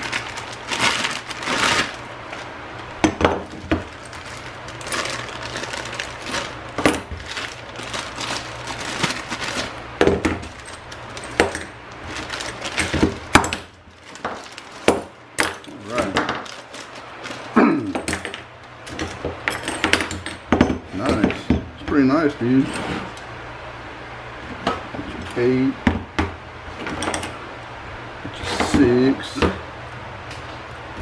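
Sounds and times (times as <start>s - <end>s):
plastic bag crinkling: 0.0s - 17.8s.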